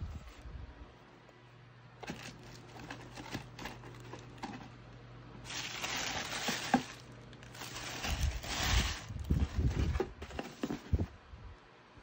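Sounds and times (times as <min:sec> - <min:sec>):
tissue paper rustling and crinkling: 0:05.5 - 0:10.9.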